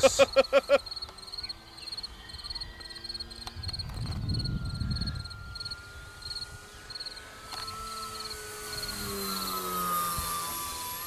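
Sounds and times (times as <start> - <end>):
crickets chirping: 0.0 - 9.6
distant model airplane motor whine: 0.0 - 11.0
wind rumble on microphone: 2.2 - 6.8.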